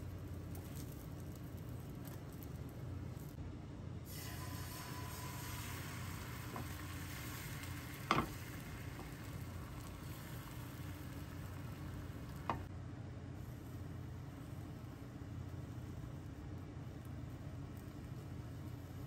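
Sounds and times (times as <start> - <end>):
egg sizzling in a hot pan: 4.1 - 12.7.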